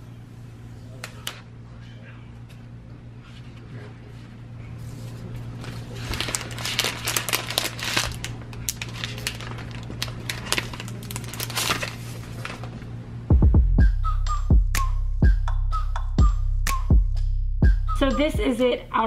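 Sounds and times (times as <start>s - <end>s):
plastic wrap peeling and crinkling: 5.2s - 12.9s.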